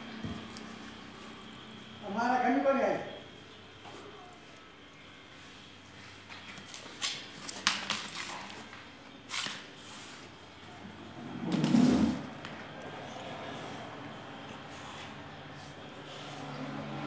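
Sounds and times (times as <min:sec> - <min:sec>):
muffled paper rustle: 0:05.6 - 0:10.3
paper rustling: 0:06.1 - 0:10.3.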